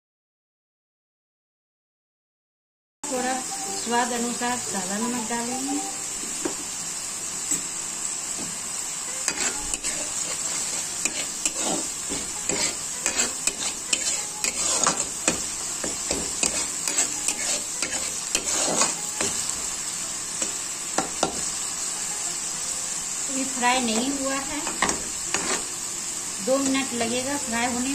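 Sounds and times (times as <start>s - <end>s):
masala sizzling in oil: 3.1s - 27.9s
spoon scraping and knocking pan: 9.2s - 19.6s, 20.4s - 21.6s, 23.9s - 25.7s.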